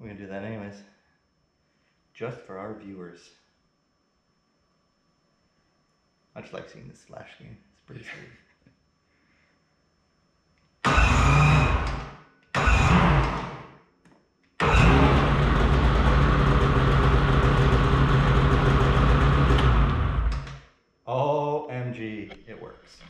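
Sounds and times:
snowmobile engine starting and idling: 10.9 - 13.6, 14.6 - 20.5.

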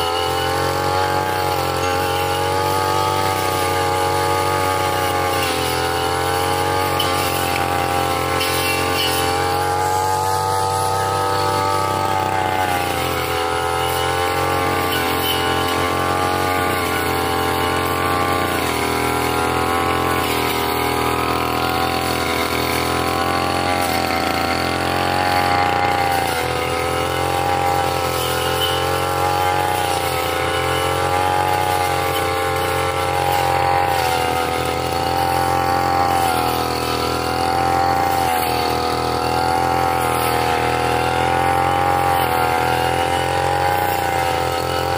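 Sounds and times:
brush cutter engine cutting grass: 0.0 - 44.9.

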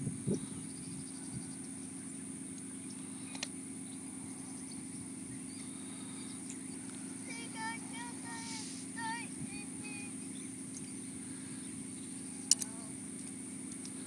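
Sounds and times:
high thin whine: 0.0 - 14.0
steady low hum: 0.0 - 14.0
faint bird chirps: 0.3 - 13.0
sharp click: 3.3 - 3.5, 12.5 - 14.0.

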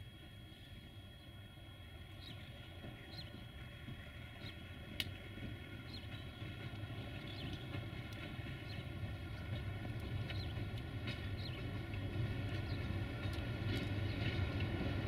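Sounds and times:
small birds chirping: 2.1 - 3.5, 5.8 - 7.8, 8.6 - 9.5, 10.2 - 13.4.

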